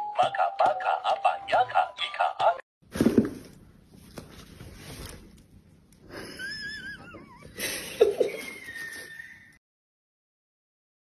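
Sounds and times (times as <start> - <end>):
cat whining: 6.5 - 7.6.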